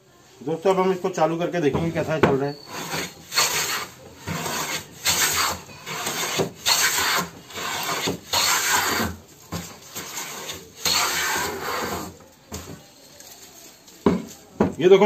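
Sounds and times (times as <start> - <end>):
hand plane rasping on wood: 2.7 - 12.2.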